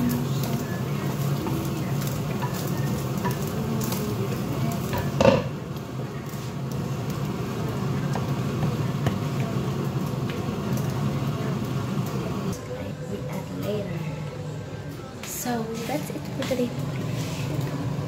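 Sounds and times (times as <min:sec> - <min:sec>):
sauce sizzling in a frying pan: 0:00.0 - 0:12.6.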